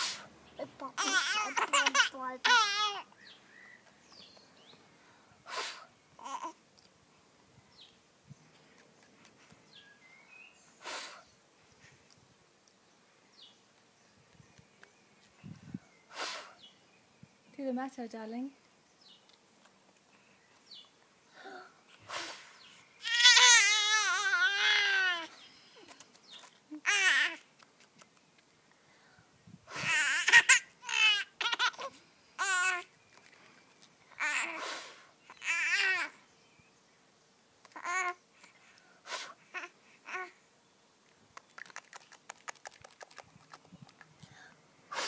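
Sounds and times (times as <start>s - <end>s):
baby squealing and babbling: 1.0s - 3.1s, 6.2s - 6.6s, 23.0s - 25.3s, 26.8s - 27.4s, 29.8s - 32.9s, 35.3s - 36.2s, 37.7s - 38.2s, 39.4s - 40.4s
child blowing puffs of breath: 5.0s - 5.9s, 10.8s - 11.3s, 16.1s - 16.6s, 21.3s - 22.7s, 28.9s - 30.0s, 34.5s - 35.2s, 38.5s - 39.5s, 44.2s - 45.0s.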